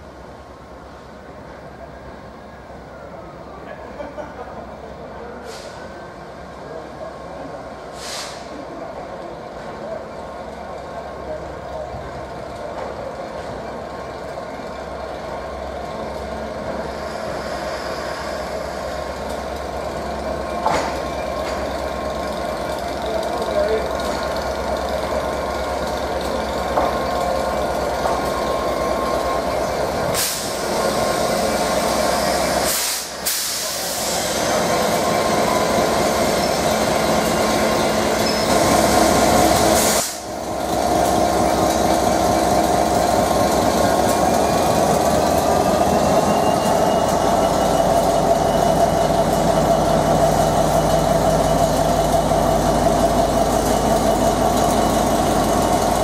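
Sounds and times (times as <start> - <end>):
diesel locomotive engine running: 0.0 - 56.0.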